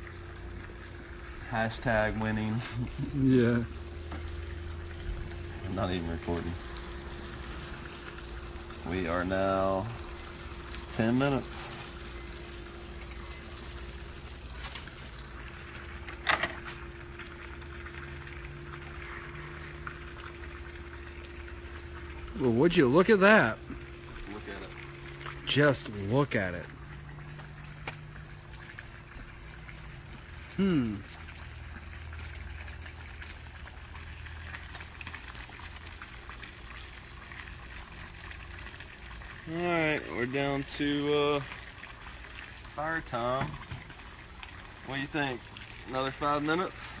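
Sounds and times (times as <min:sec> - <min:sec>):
microwave oven humming: 0:00.0 - 0:31.1
bubbling crackle of small ticks: 0:00.0 - 0:47.0.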